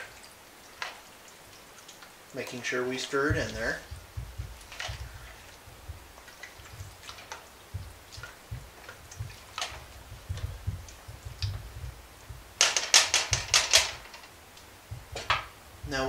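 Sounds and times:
spoon stirring thick soup: 0:02.9 - 0:14.0
spoon clacking against pot: 0:03.4 - 0:05.6, 0:12.5 - 0:14.2.

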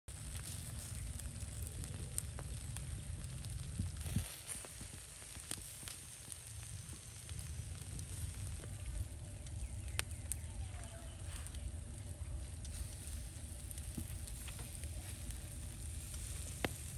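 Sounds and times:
faint crackles: 0:00.1 - 0:16.9
meat sizzling over charcoal: 0:00.1 - 0:16.9
wind rumble on microphone: 0:00.1 - 0:16.9.

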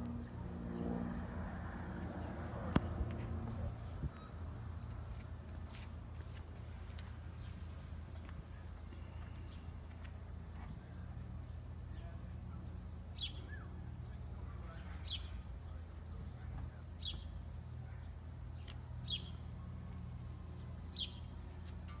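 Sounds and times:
steady low hum: 0:00.0 - 0:22.0
bird chirping: 0:10.5 - 0:16.4, 0:18.6 - 0:19.4, 0:20.6 - 0:21.3.

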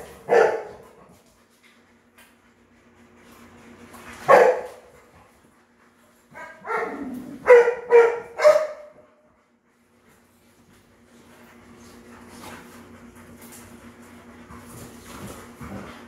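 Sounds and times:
dog barking: 0:00.0 - 0:00.8, 0:04.3 - 0:04.9, 0:06.3 - 0:09.0.

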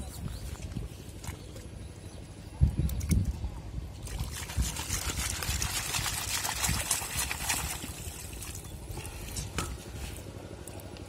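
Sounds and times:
water sloshing and trickling: 0:00.0 - 0:11.0.

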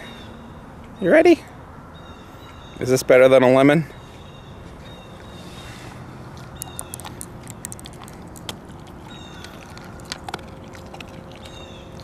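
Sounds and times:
dog crunching hard biscuit: 0:06.3 - 0:12.0.

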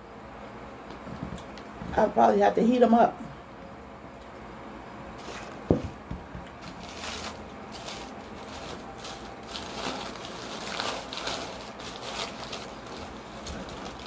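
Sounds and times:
paper wrappers rustling: 0:05.2 - 0:05.8, 0:06.6 - 0:14.0.

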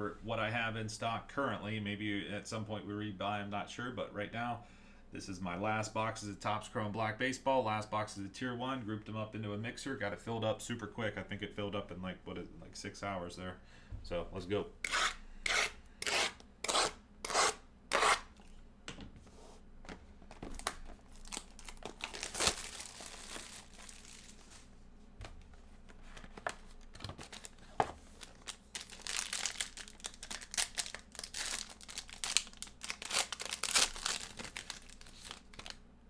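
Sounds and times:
foil pack tearing and crinkling: 0:20.5 - 0:24.6, 0:26.8 - 0:35.8
plastic shrink wrap ripping: 0:20.5 - 0:24.6, 0:28.2 - 0:35.8.

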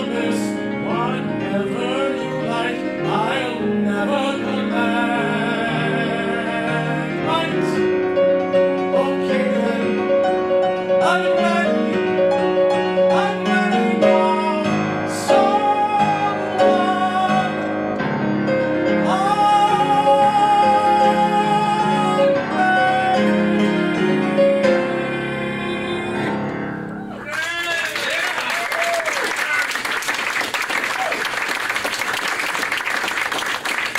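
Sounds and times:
man singing ballad: 0:00.0 - 0:07.9, 0:08.8 - 0:10.3, 0:10.9 - 0:12.2, 0:13.0 - 0:17.8, 0:18.9 - 0:26.4
piano accompaniment: 0:00.0 - 0:27.2.

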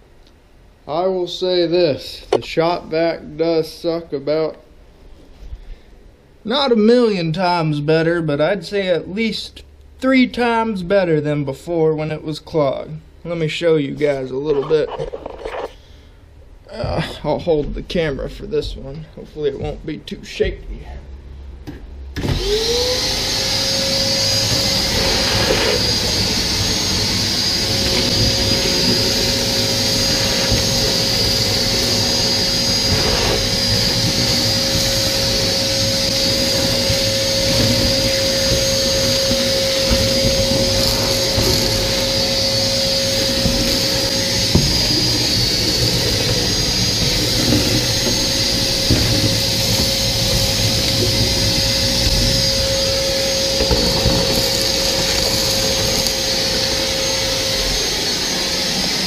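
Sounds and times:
shop vac motor whining: 0:22.1 - 0:59.0
hose sucking up debris: 0:22.4 - 0:59.0.

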